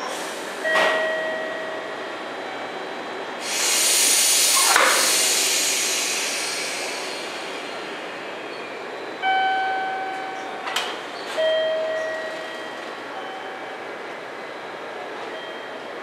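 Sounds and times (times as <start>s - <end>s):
parked electric train humming: 0.0s - 16.0s.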